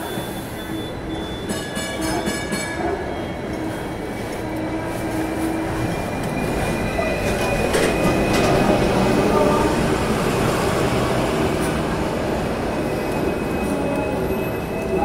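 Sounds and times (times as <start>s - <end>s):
wheel squeal: 0.0s - 4.0s
tram rumbling on tracks: 0.0s - 15.0s.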